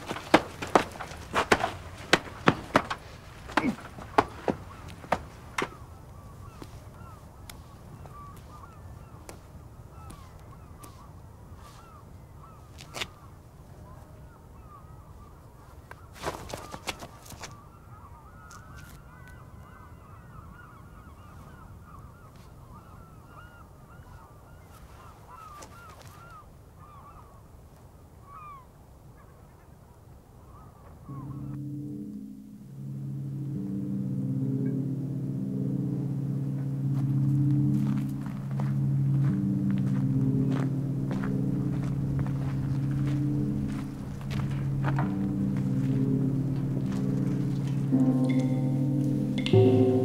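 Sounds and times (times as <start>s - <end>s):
sharp knocks: 0.0s - 5.8s, 37.0s - 50.0s
birds calling: 0.0s - 27.5s, 28.2s - 29.7s, 30.4s - 50.0s
low outdoor rumble: 31.1s - 50.0s.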